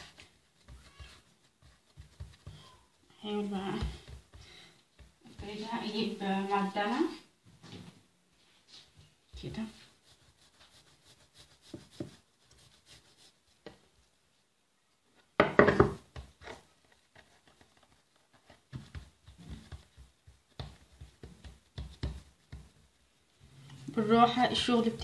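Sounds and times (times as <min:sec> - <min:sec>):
rolling pin on wooden board: 0:00.0 - 0:02.7, 0:03.4 - 0:04.4, 0:09.3 - 0:13.8, 0:15.4 - 0:17.9, 0:18.5 - 0:22.9
hands patting dough: 0:00.0 - 0:06.2, 0:09.3 - 0:14.1, 0:15.4 - 0:23.4.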